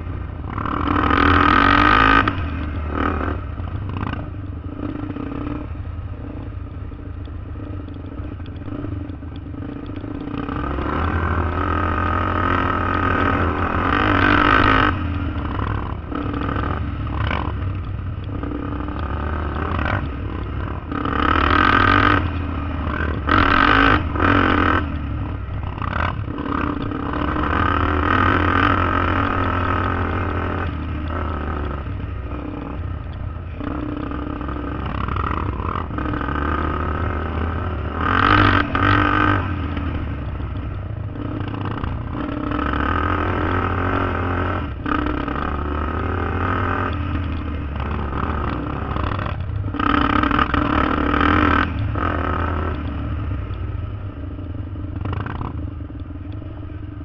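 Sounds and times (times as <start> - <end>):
quad engine running: 0.0 - 57.0.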